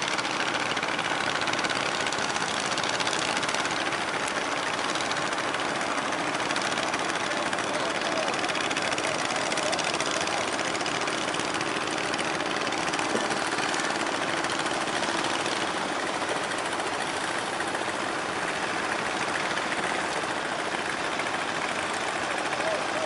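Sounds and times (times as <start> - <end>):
boat engine knocking: 0.0 - 23.0.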